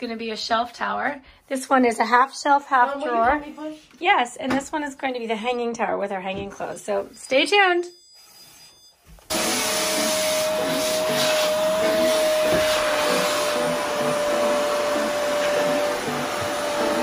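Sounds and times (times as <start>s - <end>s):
vacuum cleaner running: 9.3s - 17.0s.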